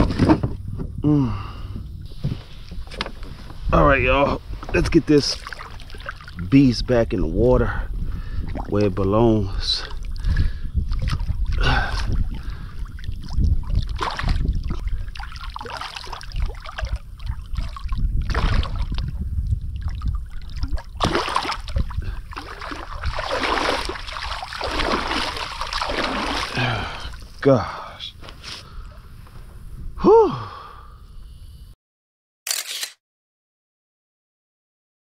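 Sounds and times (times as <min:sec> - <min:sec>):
water splashing: 0:04.8 - 0:06.8, 0:08.3 - 0:27.5
low microphone rumble: 0:06.4 - 0:15.2, 0:16.3 - 0:27.4, 0:28.7 - 0:30.0.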